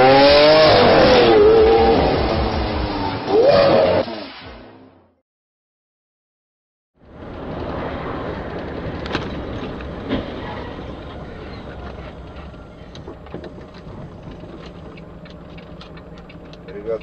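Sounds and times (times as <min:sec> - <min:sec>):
vehicle driving on wet road: 0:07.1 - 0:17.0.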